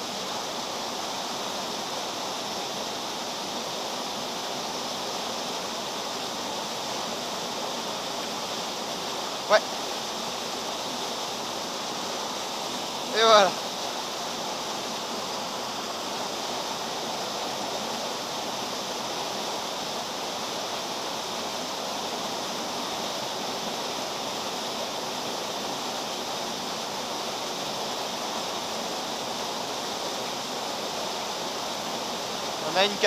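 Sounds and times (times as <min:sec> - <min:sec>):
stream water flowing: 0:00.0 - 0:33.0.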